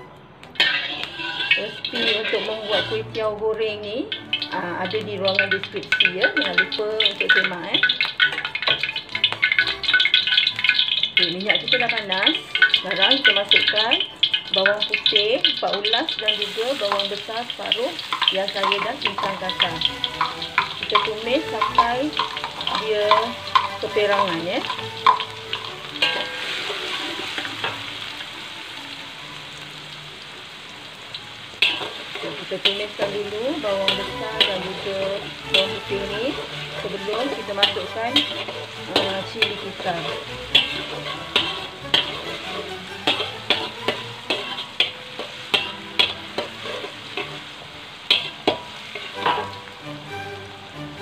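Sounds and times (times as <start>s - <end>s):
garlic and onion sizzling in oil: 0.0s - 51.0s
metal spatula scraping wok: 0.6s - 28.2s, 31.6s - 51.0s.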